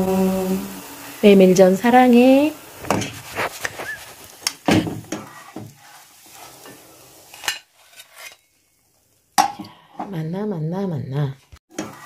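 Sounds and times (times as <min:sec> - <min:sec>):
pancake sizzling in oil: 0:00.0 - 0:09.4
utensil scraping a pan: 0:02.8 - 0:08.5.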